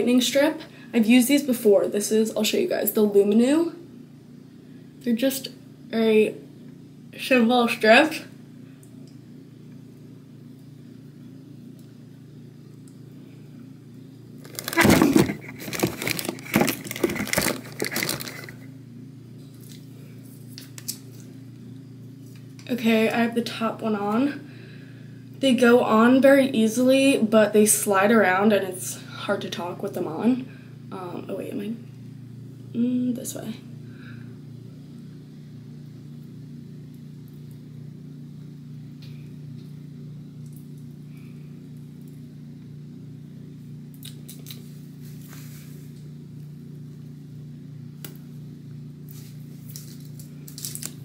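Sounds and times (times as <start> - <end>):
steady low hum: 0.0 - 51.0
machine humming: 3.1 - 20.4
rustling and crinkling handling noise: 14.4 - 18.7, 49.0 - 51.0.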